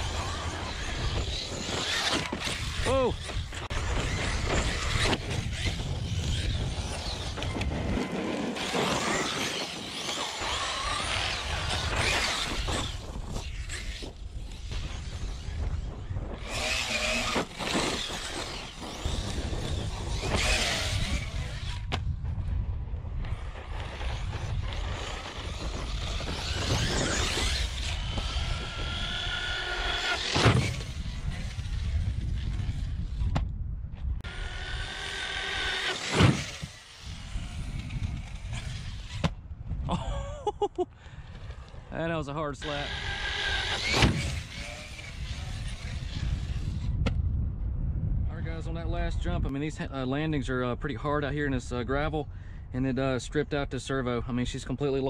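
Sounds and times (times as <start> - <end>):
electric motor whining: 0.0 - 22.1, 23.2 - 33.4, 34.2 - 39.4, 42.6 - 47.0
wind rumbling on microphone: 0.0 - 55.0.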